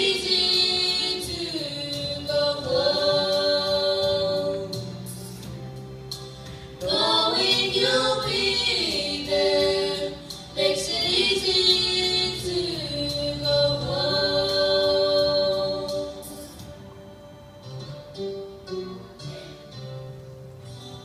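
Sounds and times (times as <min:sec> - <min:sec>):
group of voices singing: 0:00.0 - 0:05.2, 0:06.8 - 0:16.7.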